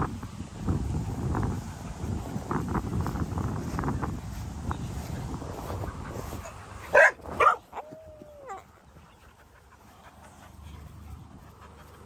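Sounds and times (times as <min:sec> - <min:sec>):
dog yipping: 0:06.9 - 0:08.6
dog whining and whimpering: 0:07.7 - 0:08.7.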